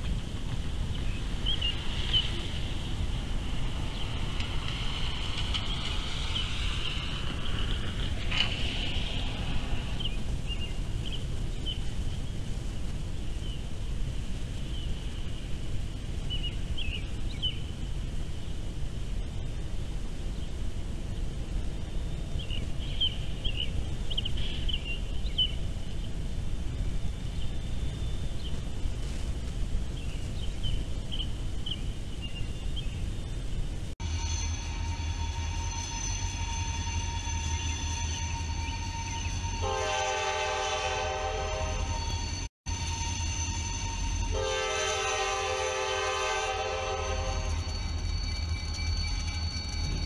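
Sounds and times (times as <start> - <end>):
freight train rumbling past: 0.0 - 50.0
diesel locomotive droning: 34.0 - 50.0
locomotive horn: 39.5 - 42.2, 43.8 - 47.7.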